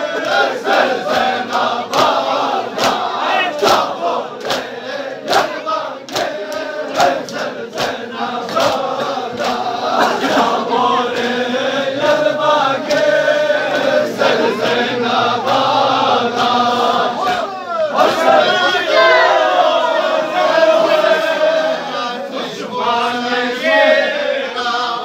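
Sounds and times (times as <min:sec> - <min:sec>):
men chanting in unison: 0:00.0 - 0:25.0
hands slapping chests: 0:00.2 - 0:09.7.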